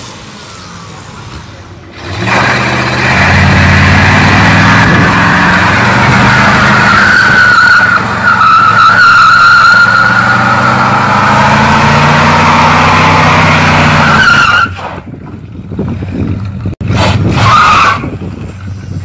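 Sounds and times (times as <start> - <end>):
tire squealing: 0.0 - 19.0
car engine at high revs: 1.9 - 14.4.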